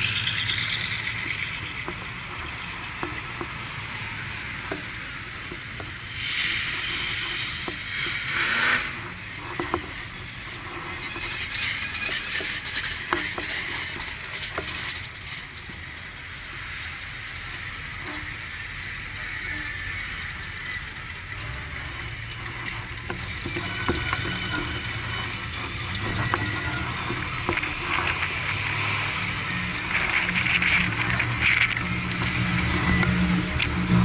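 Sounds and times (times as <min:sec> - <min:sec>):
car low rumble: 0:00.0 - 0:34.0
hiss: 0:06.0 - 0:09.0.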